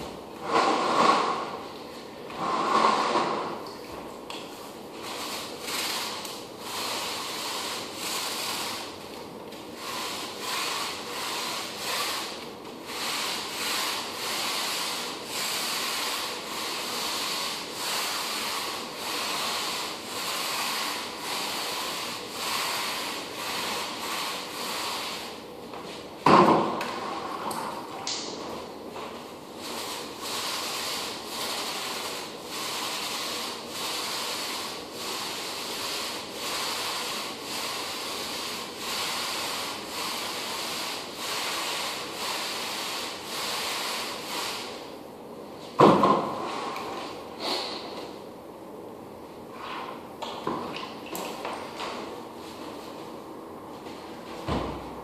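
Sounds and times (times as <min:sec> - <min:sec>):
floor applicator swishing on wood: 0:00.0 - 0:01.7, 0:02.3 - 0:03.6, 0:05.0 - 0:09.1, 0:09.7 - 0:27.3, 0:28.5 - 0:44.8.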